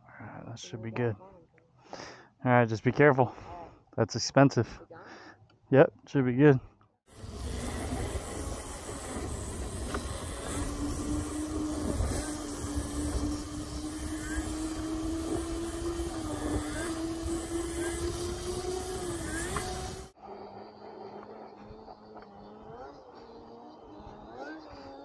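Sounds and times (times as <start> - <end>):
wind: 0.0 - 25.0
electric motor whine: 7.1 - 25.0.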